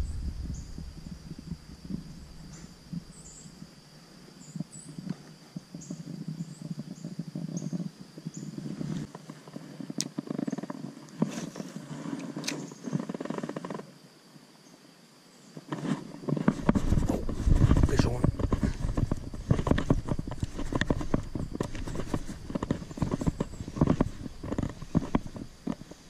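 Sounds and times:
small crackles and clicks: 0:04.5 - 0:13.9, 0:15.6 - 0:26.0.

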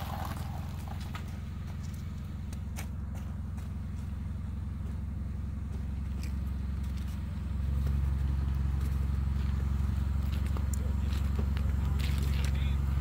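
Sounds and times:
car engine idling: 0:00.0 - 0:13.0.

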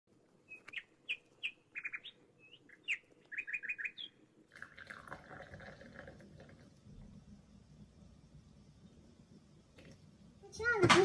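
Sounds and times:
small bird chirping: 0:00.4 - 0:04.3
soft hiss: 0:02.3 - 0:10.8.

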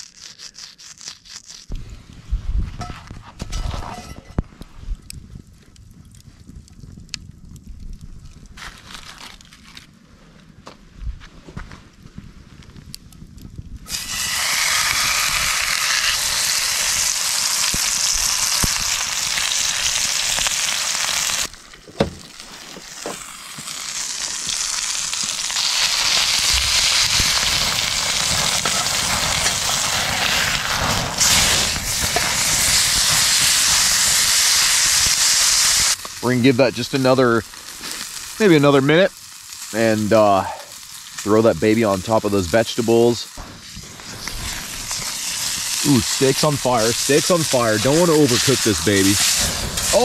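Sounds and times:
steak sizzling in a skillet: 0:13.9 - 0:21.6, 0:22.2 - 0:50.0.

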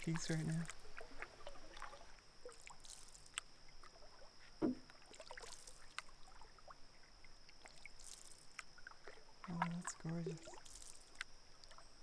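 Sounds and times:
thump: 0:04.6 - 0:04.8.

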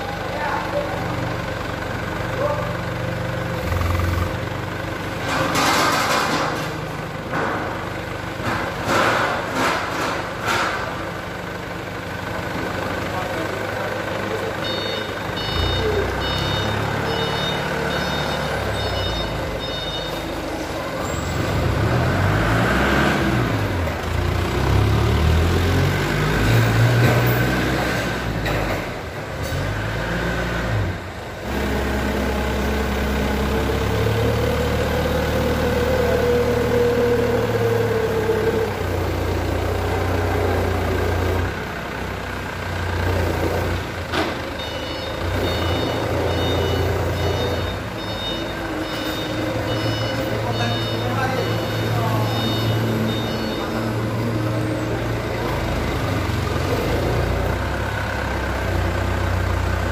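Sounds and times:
forklift engine revving: 0:00.0 - 0:59.9
reversing beeper chirping: 0:14.6 - 0:20.3, 0:44.6 - 0:55.0.

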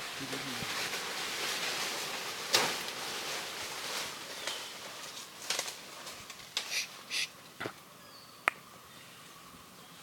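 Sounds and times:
steady rustling hiss: 0:00.0 - 0:10.0
sharp crack: 0:02.5 - 0:03.0.

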